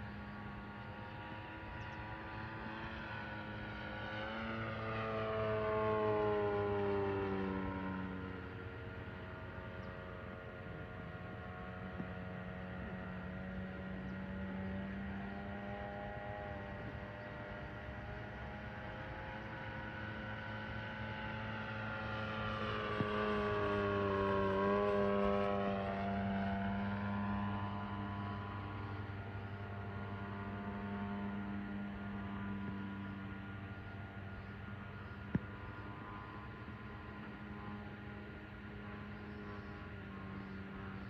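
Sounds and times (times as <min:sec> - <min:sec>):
model plane motor and propeller: 0:00.0 - 0:41.0.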